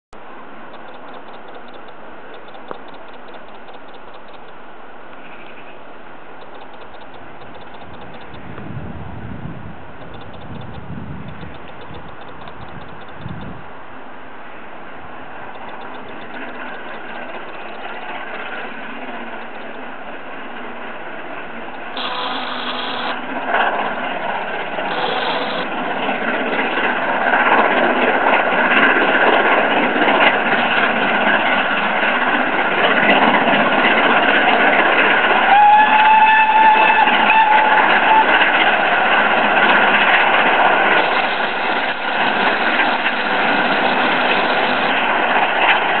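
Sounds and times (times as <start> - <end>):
steam locomotive exhaust: 21.0 - 46.0.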